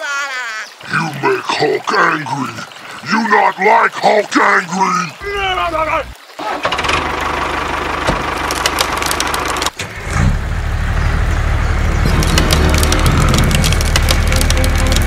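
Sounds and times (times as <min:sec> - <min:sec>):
engine running: 0:05.4 - 0:15.0
clicks and rattles: 0:12.0 - 0:15.0.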